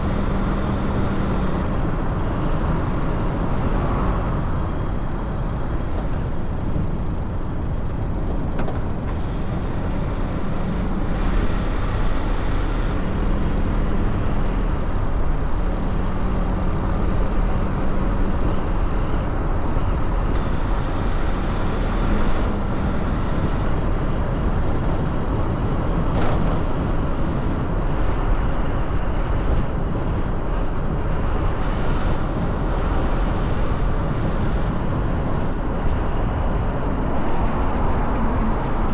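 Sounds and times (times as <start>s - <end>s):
car road and engine noise: 0.0s - 38.9s.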